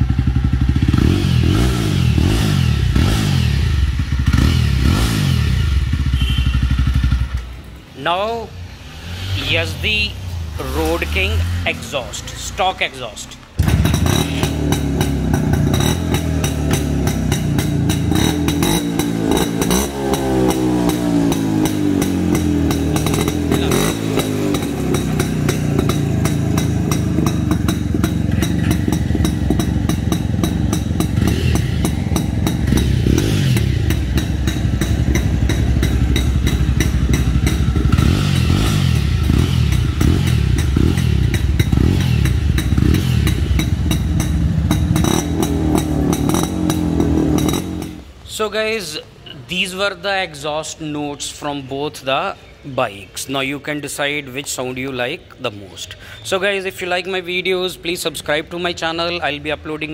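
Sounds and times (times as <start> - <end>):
two-stroke motorcycle engine running: 0.0 - 7.6, 13.6 - 48.0.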